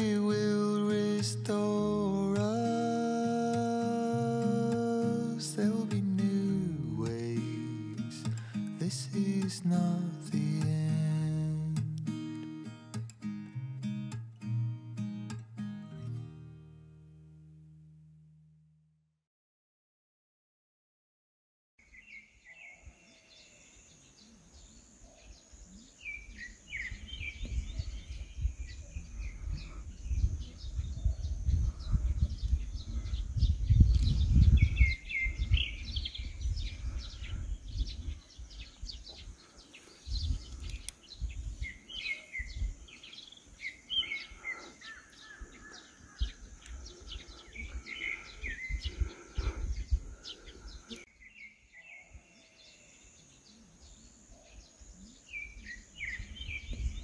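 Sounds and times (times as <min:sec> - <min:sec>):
small birds chirping and trilling: 0:00.0 - 0:12.5, 0:21.8 - 0:57.0
wind rumbling on microphone: 0:26.3 - 0:43.2, 0:45.2 - 0:51.0, 0:55.5 - 0:57.0.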